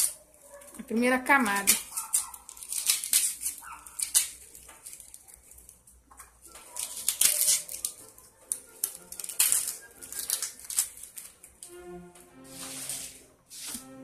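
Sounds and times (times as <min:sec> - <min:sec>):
onion skin crackling and tearing: 0:01.3 - 0:11.7.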